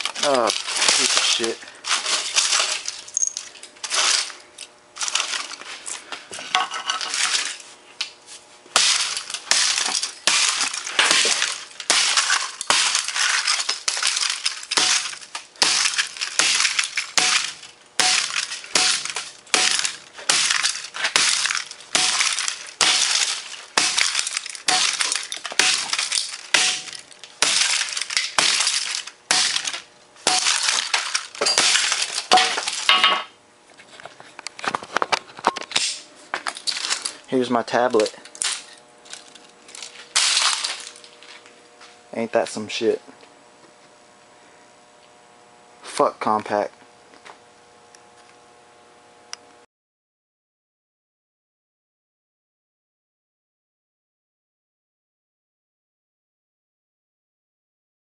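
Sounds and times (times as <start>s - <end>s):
plastic shards clinking: 0.0s - 4.4s, 5.0s - 5.6s, 6.5s - 7.6s, 8.8s - 33.3s, 35.5s - 37.2s, 38.0s - 41.4s
hammer smashing laptop: 0.2s - 3.0s, 8.8s - 33.3s, 39.8s - 41.0s.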